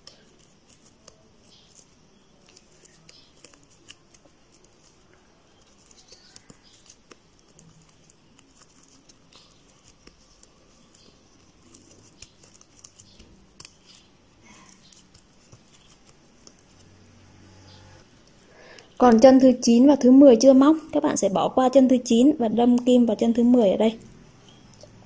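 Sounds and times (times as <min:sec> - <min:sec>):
crochet hook clicks and yarn rustles: 0:00.0 - 0:16.8, 0:22.6 - 0:23.7.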